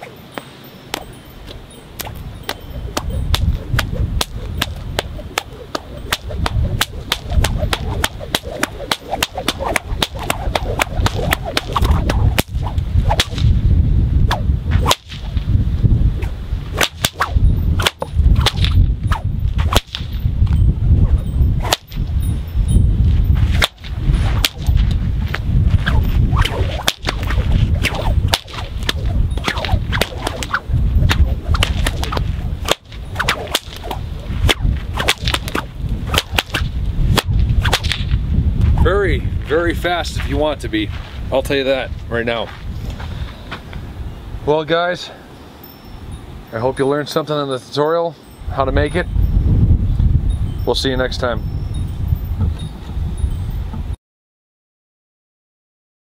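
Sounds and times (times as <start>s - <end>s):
steady low rumble: 0.8s - 44.5s
whip cracking: 2.0s - 13.6s, 14.2s - 15.5s, 16.2s - 20.2s, 21.6s - 22.1s, 23.5s - 38.2s.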